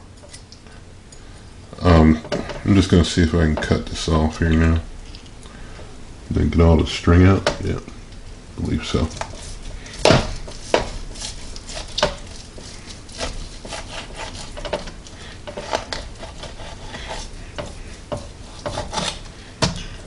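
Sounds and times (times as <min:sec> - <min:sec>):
soft rubbing: 0:08.6 - 0:20.0
utensils scraping meat and pan: 0:08.6 - 0:20.0.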